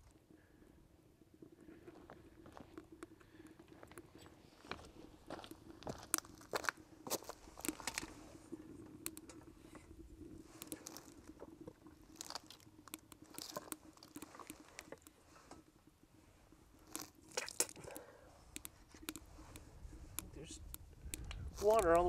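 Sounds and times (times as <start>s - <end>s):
wood fire crackling: 0.0s - 22.0s
sharp snaps of fire: 5.5s - 8.2s, 8.9s - 9.6s, 10.5s - 11.4s, 12.0s - 15.2s, 16.8s - 22.0s.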